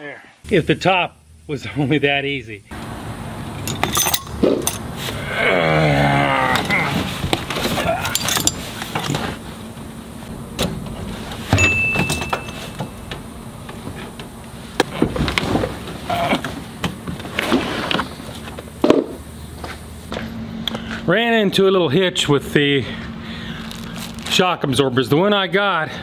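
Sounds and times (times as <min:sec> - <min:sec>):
metal tools clinking: 0:03.6 - 0:04.9, 0:07.8 - 0:09.3, 0:11.5 - 0:13.1.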